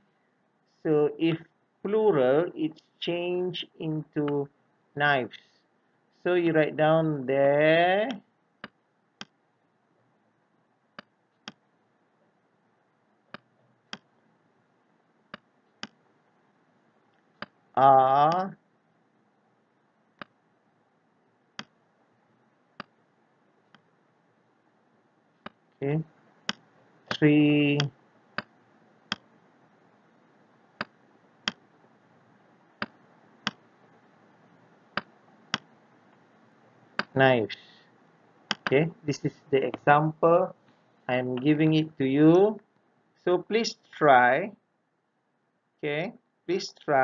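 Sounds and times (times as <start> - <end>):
computer mouse clicks: 20.2 - 20.4, 38.5 - 38.8.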